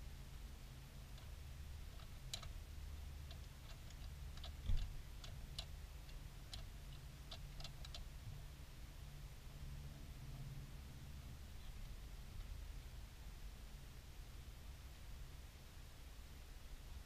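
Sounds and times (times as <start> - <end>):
hands clicking and tapping engine parts: 1.1 - 2.6, 3.2 - 8.1.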